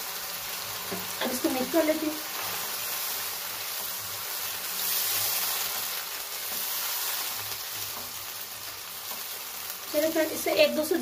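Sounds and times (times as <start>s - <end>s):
food sizzling in hot oil: 0.0s - 11.0s
spatula stirring: 2.3s - 9.8s.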